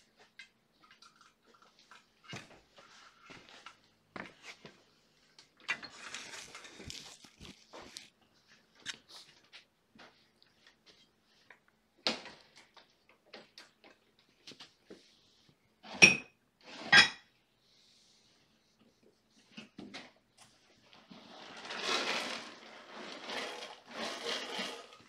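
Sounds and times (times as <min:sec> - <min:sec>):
objects being handled: 0:05.4 - 0:09.6.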